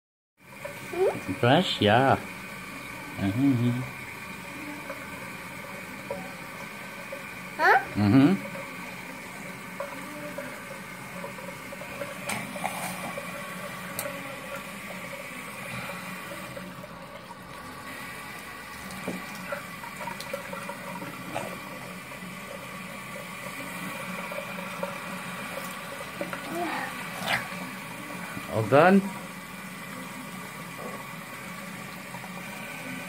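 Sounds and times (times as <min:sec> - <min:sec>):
tap running into sink: 0:18.8 - 0:21.7.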